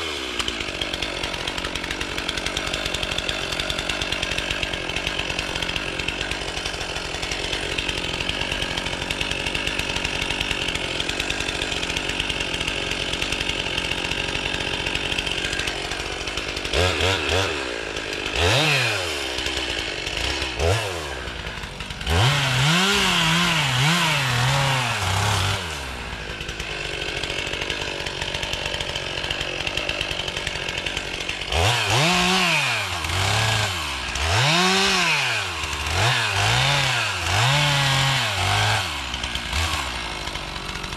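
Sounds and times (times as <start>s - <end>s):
chainsaw idling: 0.0s - 40.9s
chainsaw revving: 0.0s - 40.9s.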